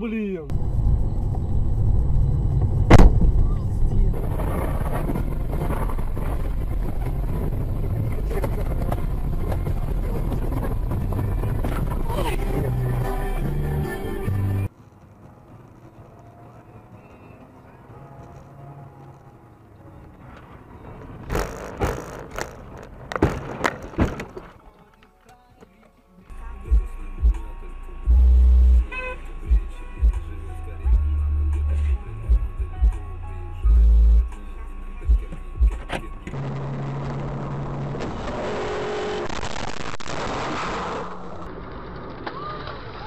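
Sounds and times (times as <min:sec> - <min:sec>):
road and engine rumble: 0:00.0 - 0:43.0
vehicle noise: 0:00.0 - 0:43.0
wind noise: 0:00.5 - 0:14.7
car collision bang: 0:02.7 - 0:03.5, 0:23.1 - 0:24.5
car collision bangs and crunches: 0:02.9 - 0:03.4, 0:21.0 - 0:24.6.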